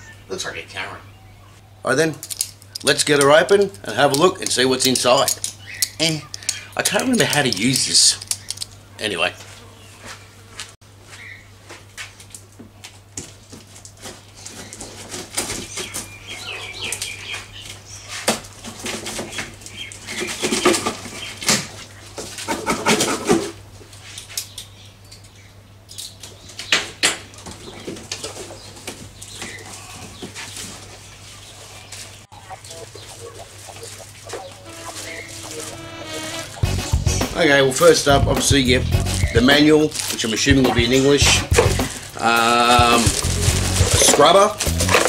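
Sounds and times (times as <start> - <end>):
packing rustling: 32.6 - 35.9, 42.8 - 45.0.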